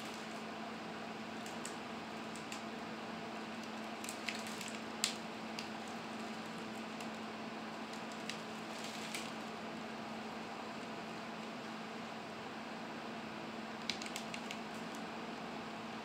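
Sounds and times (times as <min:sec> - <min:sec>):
branches snapping: 0:03.6 - 0:07.2, 0:07.9 - 0:09.4.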